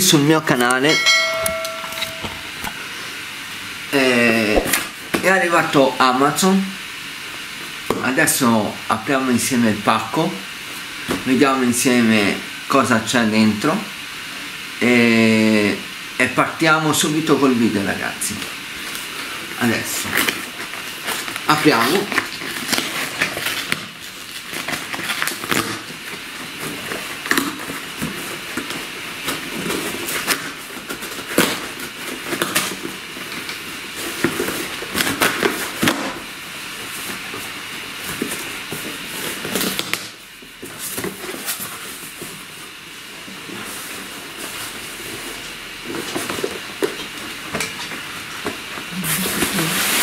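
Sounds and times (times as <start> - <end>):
crumpled paper rustling: 19.0 - 35.9
packing tape ripping off cardboard: 20.0 - 36.2.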